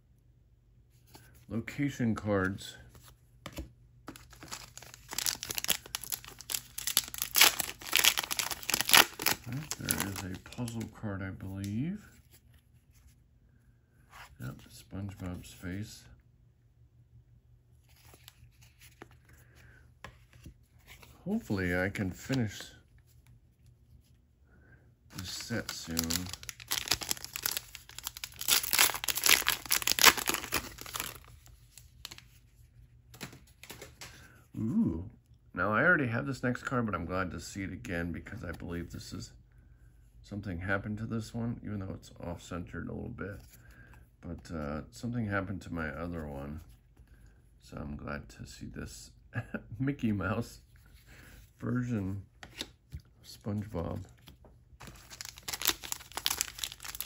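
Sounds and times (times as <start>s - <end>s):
wrapper crinkling and tearing: 4.1s - 10.8s, 25.1s - 32.2s, 54.8s - 57.0s.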